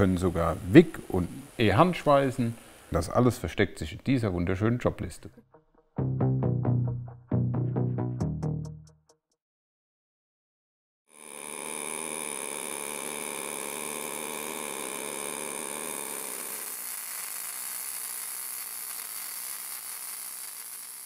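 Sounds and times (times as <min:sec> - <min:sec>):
welding arc buzzing hiss: 0:00.0 - 0:03.6, 0:11.1 - 0:21.0.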